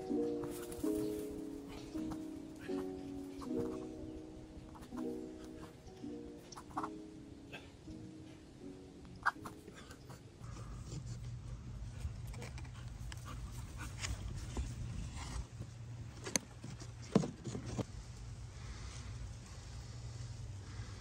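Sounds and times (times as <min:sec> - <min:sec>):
low steady rumble: 0:10.5 - 0:21.0.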